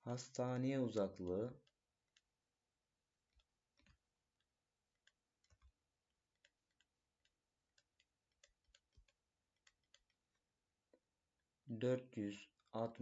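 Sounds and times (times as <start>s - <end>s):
stylus tapping on tablet: 3.3s - 11.1s.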